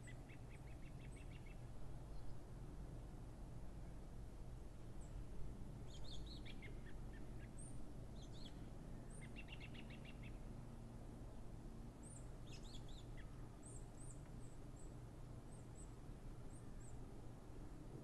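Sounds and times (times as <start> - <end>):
songbirds singing: 0.0 - 2.4, 5.8 - 10.5, 12.0 - 17.0.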